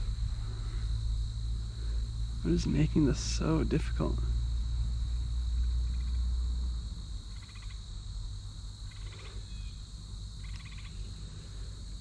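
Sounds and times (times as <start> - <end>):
frog pulsed trill: 0.0 - 6.4, 7.0 - 7.9, 8.8 - 9.8, 10.4 - 11.1
low rumble: 0.0 - 7.3
insects buzzing: 0.0 - 12.0.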